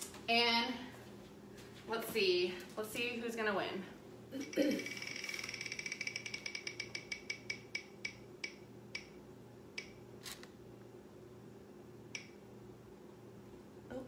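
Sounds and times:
prize wheel ticking: 0:04.8 - 0:08.6.

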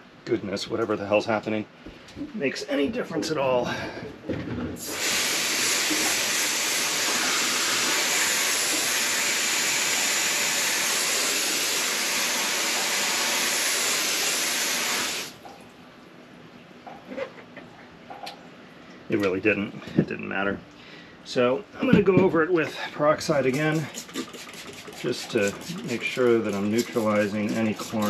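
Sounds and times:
hose nozzle spraying water: 0:04.8 - 0:15.4, 0:23.2 - 0:28.0.

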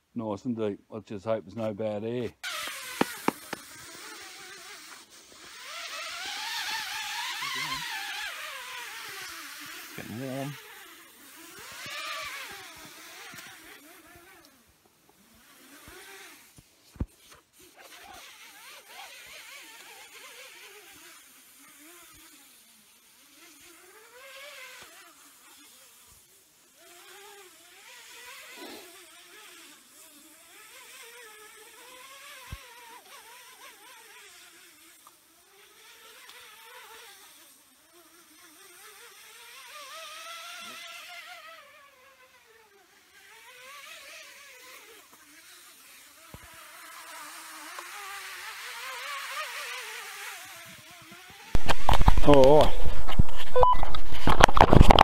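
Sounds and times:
rope whirring over edge: 0:02.4 - 0:14.3, 0:51.5 - 0:55.0.

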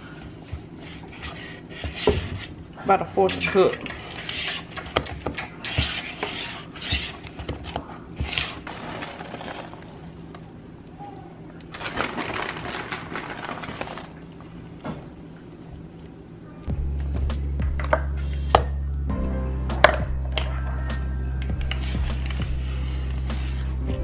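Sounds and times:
spatula scraping batter in bowl: 0:05.6 - 0:07.4
plastic bag rustling: 0:08.2 - 0:10.3, 0:11.7 - 0:14.6.

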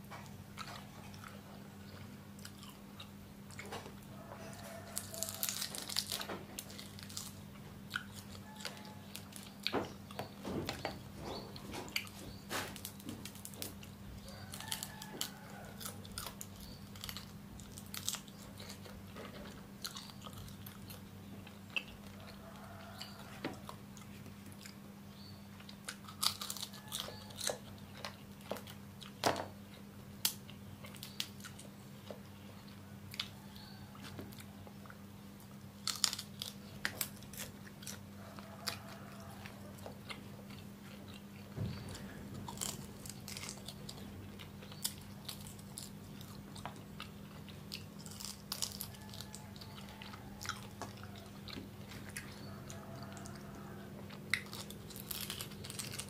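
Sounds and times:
crunching and chewing: 0:00.0 - 0:56.0
steady low hum: 0:00.0 - 0:56.0.

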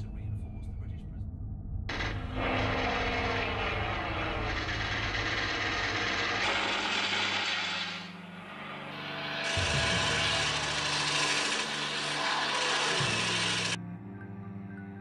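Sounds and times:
low droning tones: 0:00.0 - 0:15.0
harsh mechanical noise: 0:01.9 - 0:13.8.

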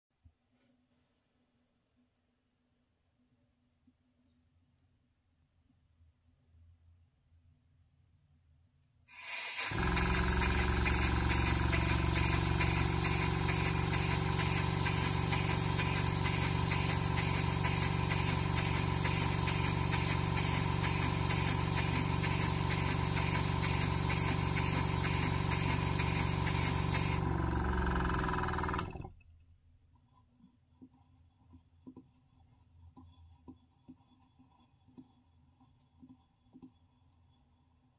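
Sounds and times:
model steam engine running: 0:09.1 - 0:29.1.

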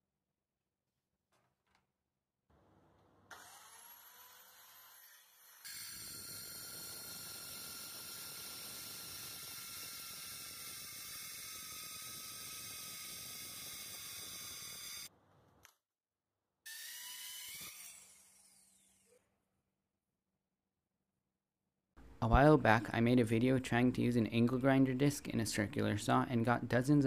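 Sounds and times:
circular saw spinning up: 0:03.3 - 0:15.1, 0:16.7 - 0:19.3
saw grinding through sheet metal: 0:03.3 - 0:15.1, 0:16.7 - 0:19.2.

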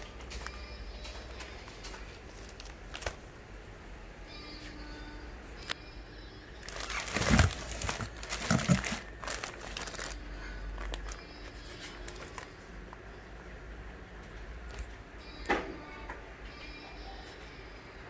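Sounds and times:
plastic packaging crinkling: 0:00.0 - 0:03.3, 0:06.6 - 0:12.7.

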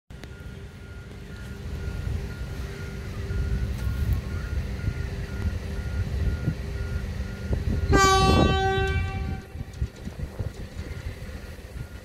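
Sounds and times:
low train rumble: 0:00.1 - 0:12.0
train horn blast: 0:07.8 - 0:09.7.

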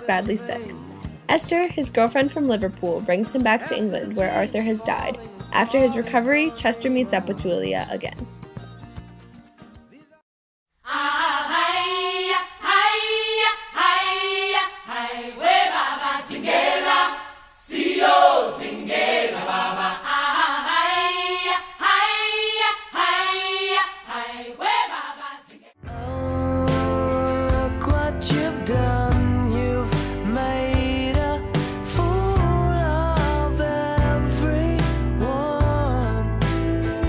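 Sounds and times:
unaccompanied choral singing: 0:10.8 - 0:26.2.

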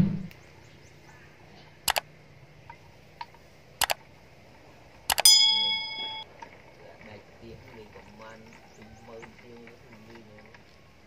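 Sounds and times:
struck steel clang: 0:05.2 - 0:06.2.

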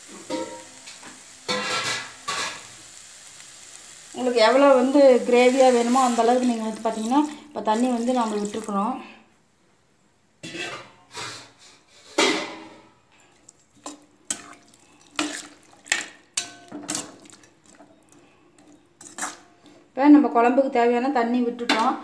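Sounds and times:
metal ladle scraping metal pan: 0:00.2 - 0:00.8, 0:01.5 - 0:02.8, 0:10.4 - 0:12.7.

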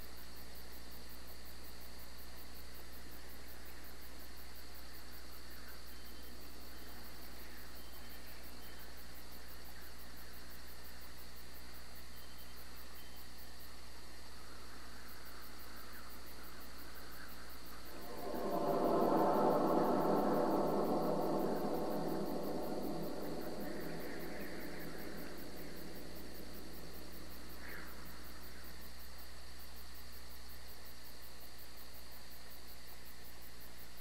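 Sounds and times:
cricket trill: 0:00.0 - 0:34.0
low hum and hiss: 0:00.0 - 0:34.0
deep gong-like musical swell: 0:17.9 - 0:28.4.

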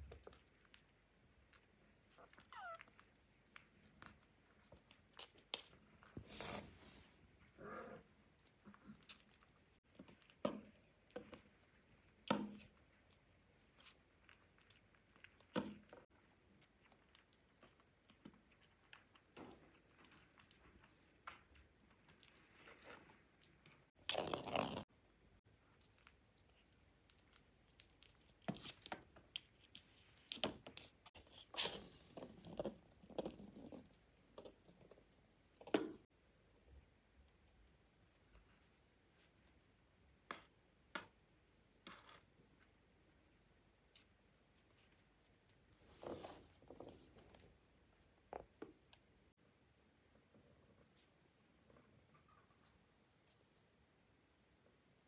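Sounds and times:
kittens crunching dry kibble: 0:00.0 - 0:36.0
kittens scuffing on tiled floor: 0:05.3 - 0:07.2, 0:45.7 - 0:47.5.

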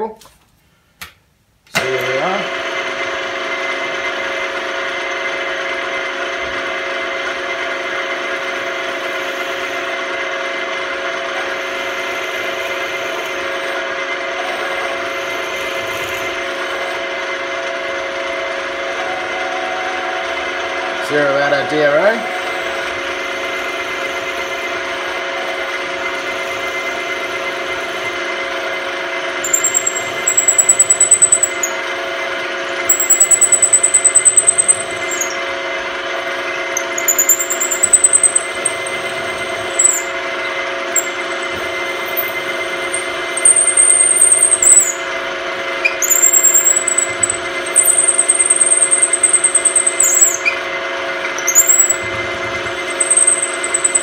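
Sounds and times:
milling machine spindle running: 0:02.0 - 0:54.0
drill bit squealing: 0:11.3 - 0:17.0, 0:18.6 - 0:54.0.

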